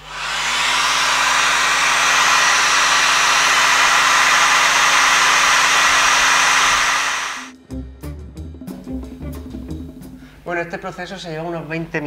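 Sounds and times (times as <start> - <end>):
hair dryer blowing: 0.0 - 7.6.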